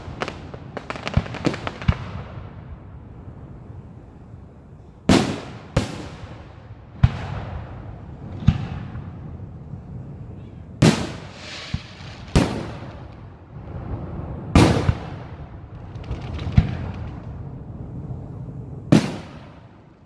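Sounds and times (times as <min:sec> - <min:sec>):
firework shells booming: 0:10.8 - 0:13.2.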